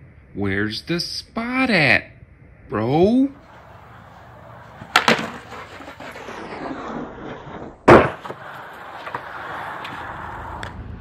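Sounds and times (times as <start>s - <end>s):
skateboard wheels rolling on concrete: 3.3s - 11.0s
skateboard smacking on concrete: 3.5s - 10.8s.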